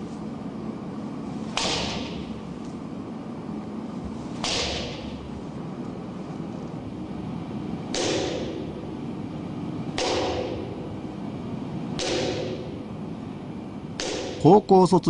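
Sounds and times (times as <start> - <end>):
bamboo sword blows: 4.4 - 5.2.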